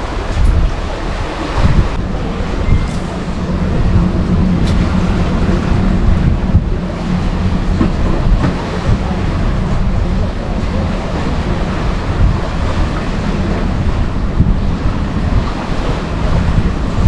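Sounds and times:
sea waves washing: 0.0s - 17.0s
wind rumbling on microphone: 0.0s - 17.0s.

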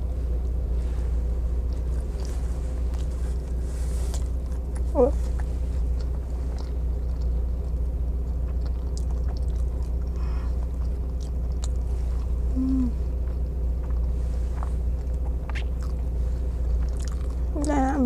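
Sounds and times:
low hum inside a car: 0.0s - 18.0s
chewing a burger: 1.6s - 18.0s
short throat hum: 12.4s - 13.2s.

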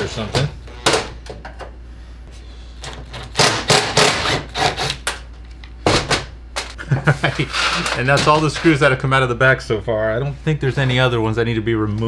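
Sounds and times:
impact driver whirring: 3.2s - 5.0s.

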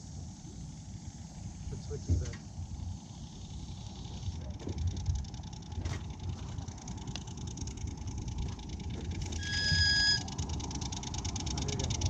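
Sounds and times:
low rumble with fast ticking: 0.0s - 12.0s
locomotive whistle: 9.2s - 10.5s.

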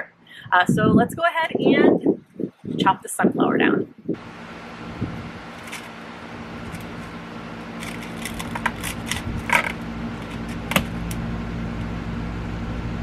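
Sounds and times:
low background rumble: 0.0s - 13.0s
pruning shears snipping stalk: 7.8s - 11.2s.

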